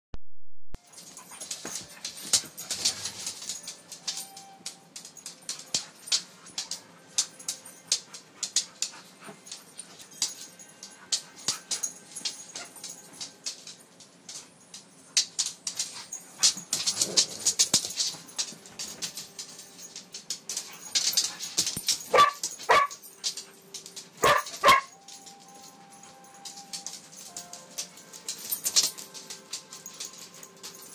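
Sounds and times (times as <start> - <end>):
dogs scuffling: 0.9 - 30.9
dogs yipping: 20.6 - 25.3.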